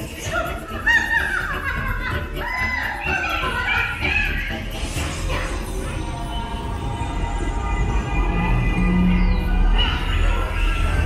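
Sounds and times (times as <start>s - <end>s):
soundtrack music: 0.0s - 11.0s
steady low rumble: 3.5s - 11.0s.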